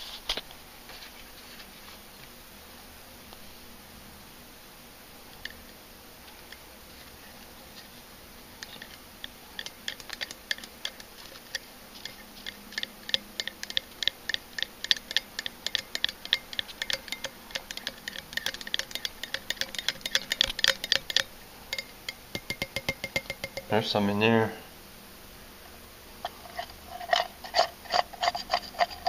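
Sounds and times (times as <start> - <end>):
stir stick clicking against glass jar: 9.6 - 23.7.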